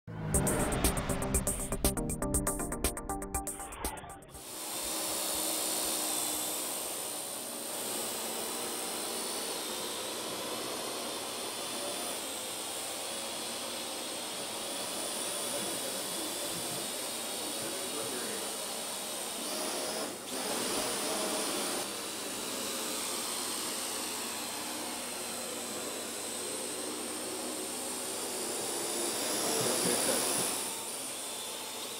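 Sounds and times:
drone motors whining: 0:08.5 - 0:31.9.

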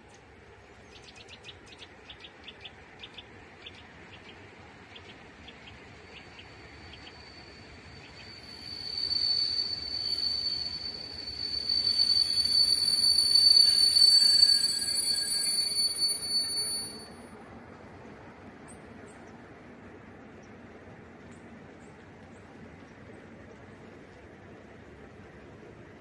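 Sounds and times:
train wheels squealing on rails: 0:00.4 - 0:19.2.

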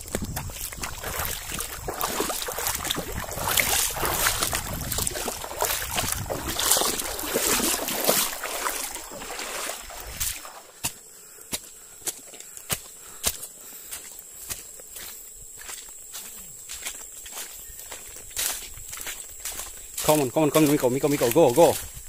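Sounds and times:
wind rumble on microphone: 0:00.0 - 0:08.0, 0:21.7 - 0:22.0
stream water rushing over stones: 0:00.0 - 0:10.8.

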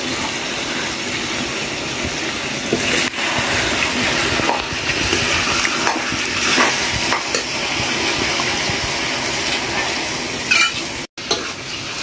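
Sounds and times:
chicken sizzling in a pan: 0:00.0 - 0:12.0
metal spoon scraping pan: 0:09.4 - 0:11.6.

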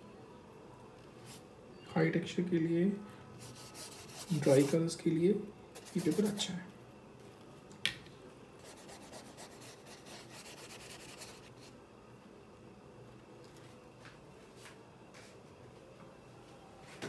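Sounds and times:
rubbing on textured paper: 0:03.4 - 0:04.8, 0:05.8 - 0:06.5.

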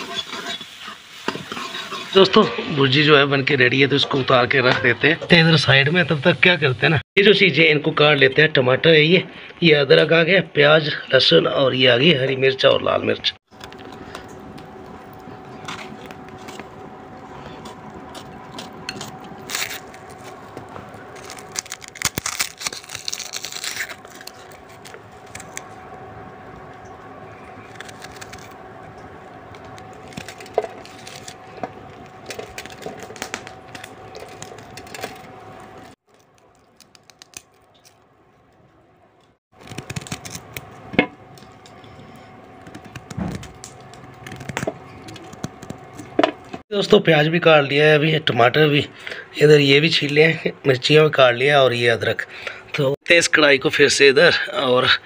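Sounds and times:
background hum: 0:02.4 - 0:55.0.

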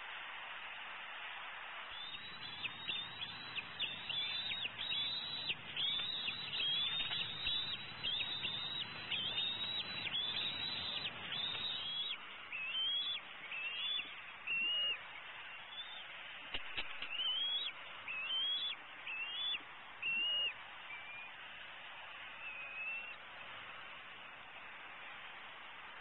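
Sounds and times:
microphone hiss: 0:00.0 - 0:26.0
eagle chattering: 0:02.2 - 0:12.2.

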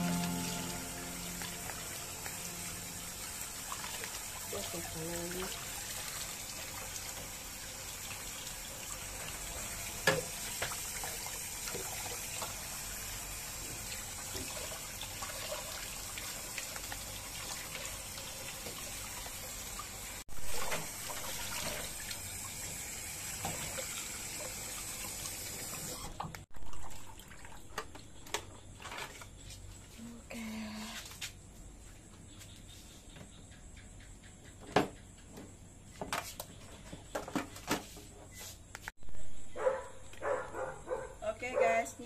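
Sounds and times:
tap water splashing in basin: 0:03.2 - 0:07.4, 0:08.0 - 0:12.7, 0:13.7 - 0:19.9, 0:20.5 - 0:25.2.

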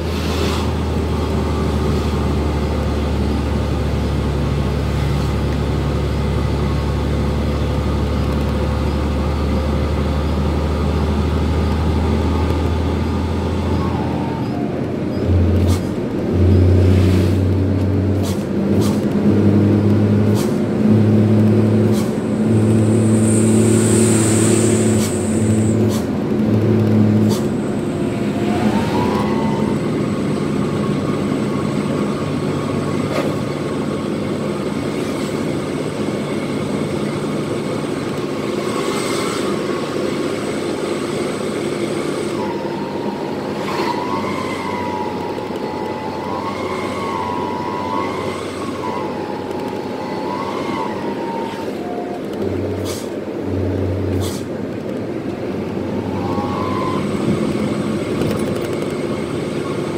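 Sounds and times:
diesel truck engine running: 0:00.0 - 0:59.9
short hiss: 0:54.2 - 0:54.5.

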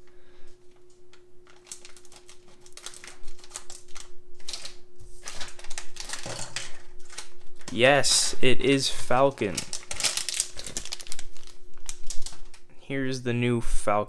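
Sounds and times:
foil bag crinkling: 0:00.8 - 0:12.7
scissors snipping foil bag: 0:01.4 - 0:07.9, 0:09.1 - 0:12.6
plastic parts falling on table: 0:05.3 - 0:07.8.

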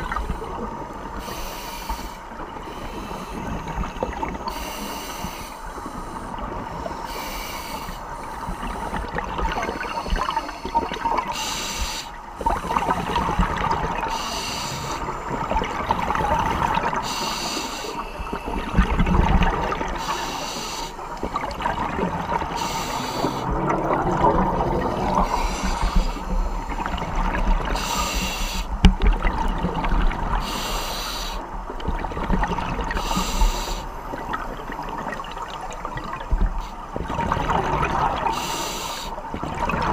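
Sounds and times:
exhaled bubbles underwater: 0:00.0 - 0:01.4, 0:08.6 - 0:11.4, 0:12.3 - 0:20.4, 0:21.1 - 0:30.7, 0:31.3 - 0:39.9
hiss and rumble of water: 0:00.0 - 0:39.9.

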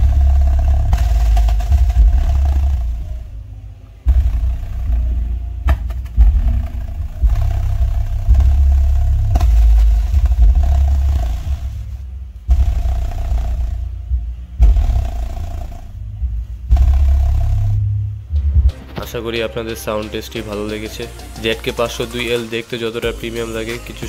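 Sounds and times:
heavy pulsing bass from speaker: 0:00.0 - 0:18.8.

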